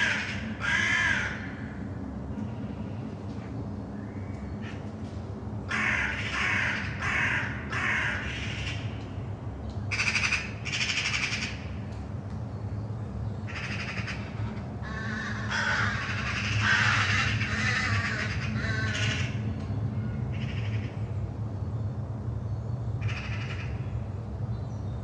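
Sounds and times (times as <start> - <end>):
crows cawing: 0.0 - 1.8, 5.7 - 8.9, 9.9 - 11.7, 13.5 - 19.4, 20.1 - 21.0, 23.0 - 23.9
steady low drone: 0.0 - 25.0.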